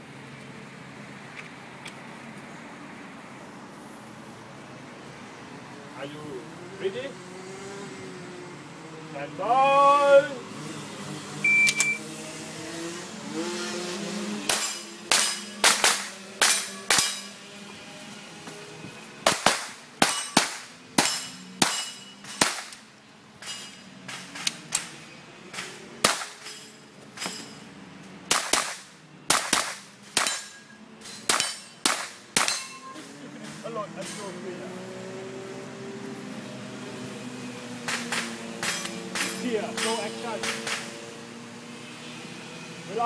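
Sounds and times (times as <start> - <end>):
shot timer beep: 11.4 - 12.0
rifle shots: 14.5 - 17.3, 19.2 - 22.8, 26.0 - 26.4, 28.3 - 30.4, 31.3 - 32.6.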